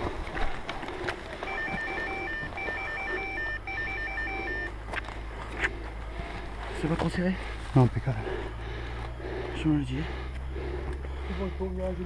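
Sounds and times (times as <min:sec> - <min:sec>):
short electronic beeps: 0:01.5 - 0:04.8.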